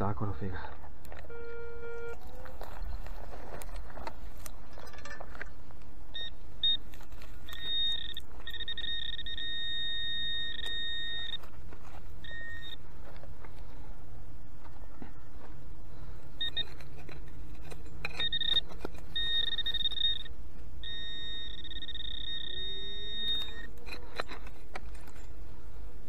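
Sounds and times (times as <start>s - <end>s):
metal detector steady tone: 1.1s - 13.9s, 16.0s - 25.4s
metal detector beeps: 1.2s - 3.0s, 6.1s - 11.5s, 12.2s - 12.8s, 16.4s - 24.5s.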